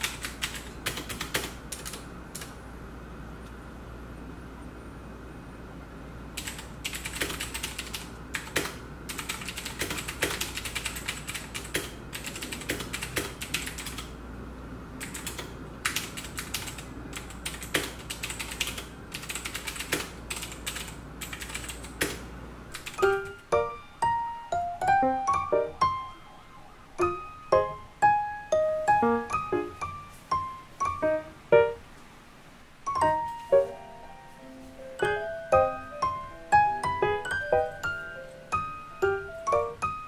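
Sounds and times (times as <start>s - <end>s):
mechanical keyboard typing: 0.0s - 2.6s, 6.4s - 14.2s, 15.0s - 23.4s
piano music: 22.8s - 32.2s, 32.8s - 40.0s.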